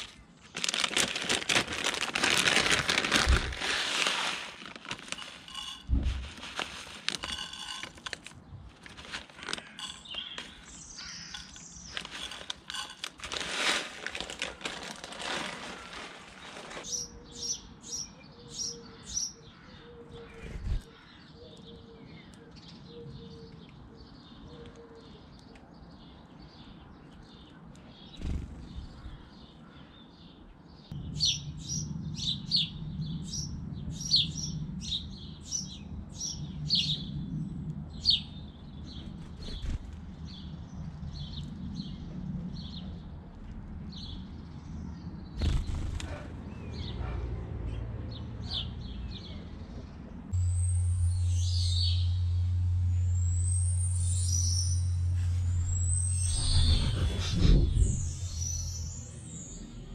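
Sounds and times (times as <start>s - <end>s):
plastic bag rustling: 0.0s - 17.0s
bird seed scattered onto board: 2.6s - 17.0s
sparrows chirping: 5.0s - 13.4s, 14.1s - 59.9s
low steady hum: 50.2s - 59.9s.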